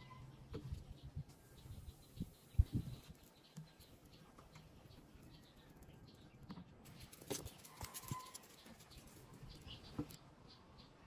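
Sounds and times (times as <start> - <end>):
light ticks and scratches: 3.0 - 10.2.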